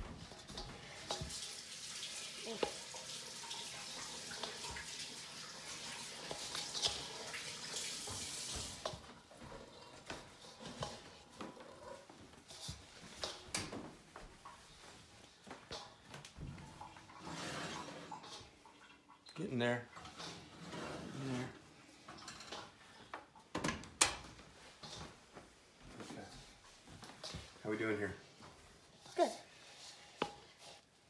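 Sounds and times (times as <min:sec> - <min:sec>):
tap running into a sink: 0:00.5 - 0:09.1.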